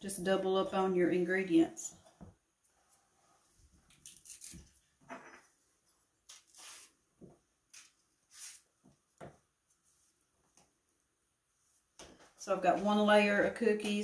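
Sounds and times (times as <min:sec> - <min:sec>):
banana peel rustling: 0:03.9 - 0:04.8.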